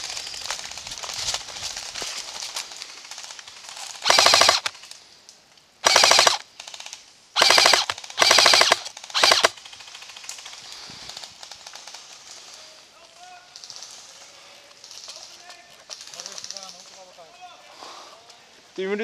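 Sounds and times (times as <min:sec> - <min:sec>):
airsoft rifle bursts: 0:04.0 - 0:04.7, 0:05.8 - 0:10.5.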